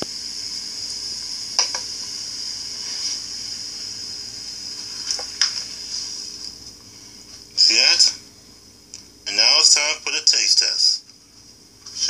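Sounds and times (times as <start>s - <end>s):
soda fizzing in a cup: 0.0s - 6.6s.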